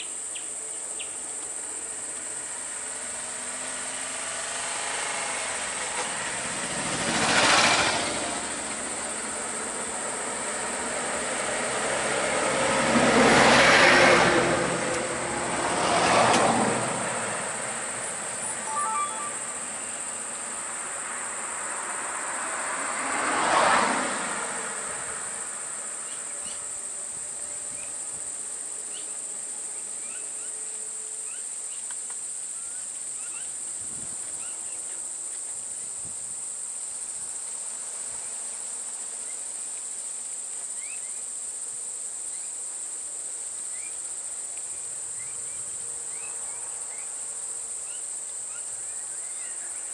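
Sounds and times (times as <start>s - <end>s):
vehicles passing close by: 1.3s - 27.6s
high-pitched insect drone: 18.0s - 20.8s.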